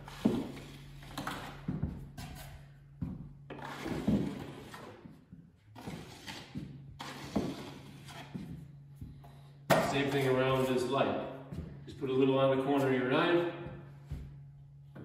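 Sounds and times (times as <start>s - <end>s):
taping knife scraping compound: 3.5s - 5.0s, 5.8s - 8.4s.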